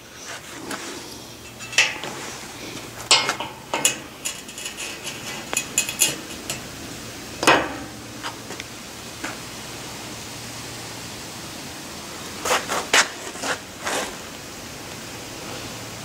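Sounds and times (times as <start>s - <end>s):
steel parts knocking on a rack: 1.4s - 6.8s, 7.4s - 8.4s.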